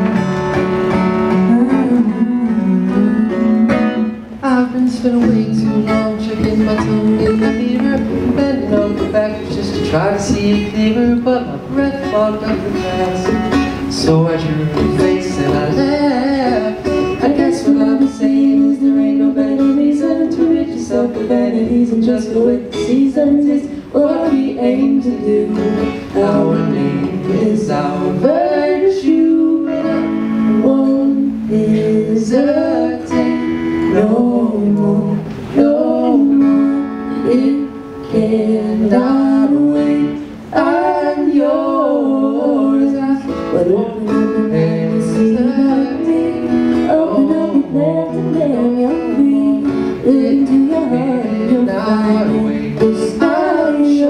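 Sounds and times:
acoustic guitar: 0.0 - 54.0
woman singing: 14.4 - 54.0.

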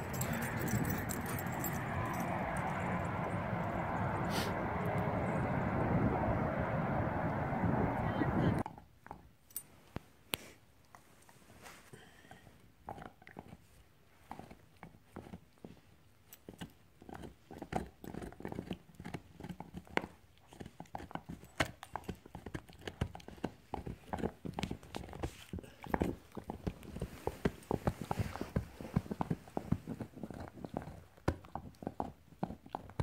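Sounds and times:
puppy gnawing on antler: 0.0 - 5.0, 12.0 - 33.0.

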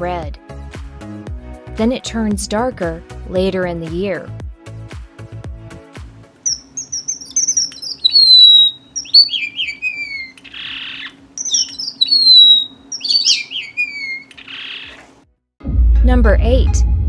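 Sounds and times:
bird whistled calls: 6.4 - 15.0.

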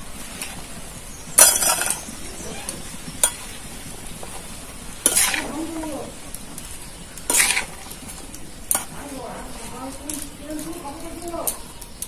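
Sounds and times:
low sizzle: 0.0 - 12.0
metal spatula scraping pan: 1.3 - 10.8.

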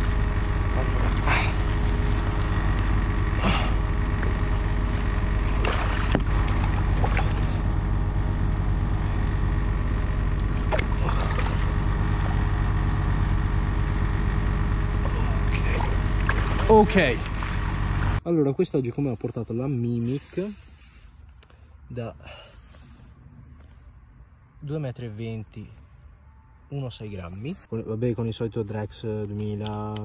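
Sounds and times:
steady low rumble: 0.0 - 20.0
fish splashing and thrashing in water: 4.1 - 7.8, 10.3 - 12.6, 15.6 - 18.2.

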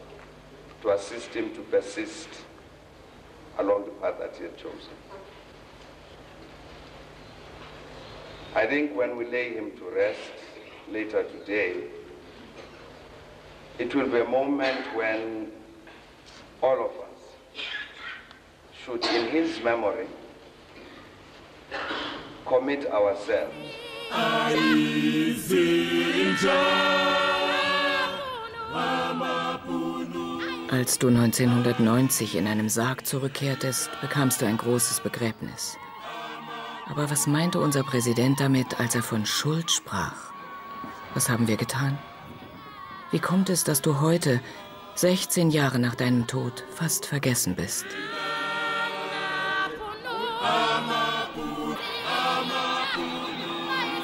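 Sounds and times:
group singing in harmony: 23.4 - 54.0.

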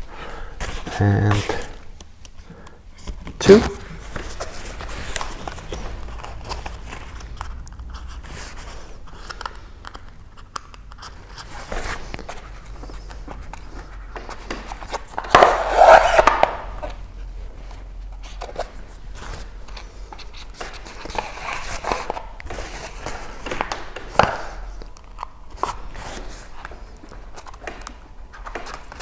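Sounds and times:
fabric rustling and scraping: 3.0 - 9.2.

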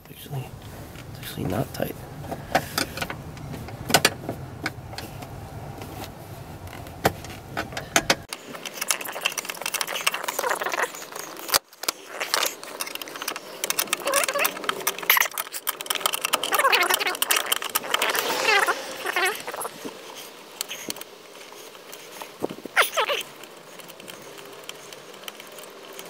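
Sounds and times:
low hum: 0.0 - 8.3
carpet rustling: 0.0 - 26.0.

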